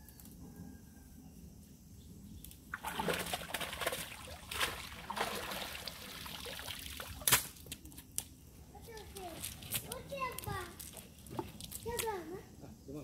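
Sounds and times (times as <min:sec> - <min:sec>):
water splashing off a net: 0:02.7 - 0:07.7.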